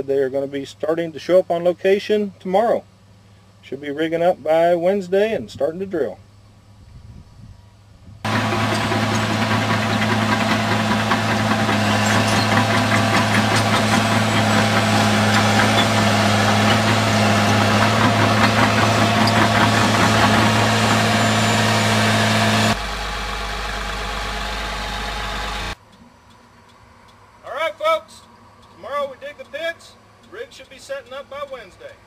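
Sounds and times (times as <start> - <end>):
bulldozer diesel engine rattling: 8.3 - 25.8.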